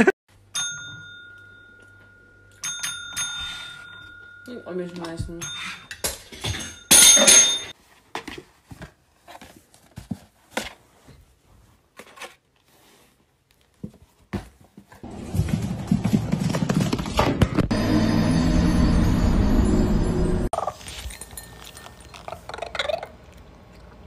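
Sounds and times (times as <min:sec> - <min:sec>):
desk service bell ringing: 0:00.5 - 0:05.9.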